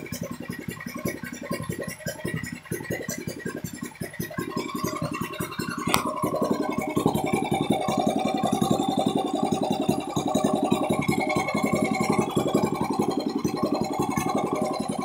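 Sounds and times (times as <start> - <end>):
single-cylinder engine running: 0.0 - 15.0
sharp click: 5.9 - 6.1.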